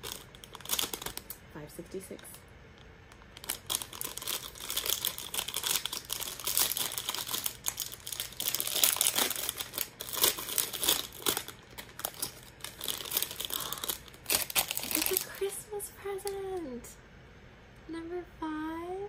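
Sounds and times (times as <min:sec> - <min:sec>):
plastic packet crinkling and tearing: 0:00.0 - 0:01.5, 0:03.1 - 0:15.6
plastic wrapper crackling: 0:00.0 - 0:01.5, 0:03.1 - 0:15.6.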